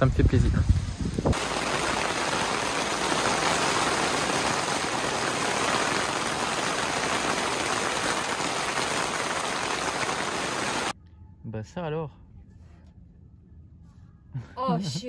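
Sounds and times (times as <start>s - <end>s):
steady rain falling: 1.3s - 11.0s.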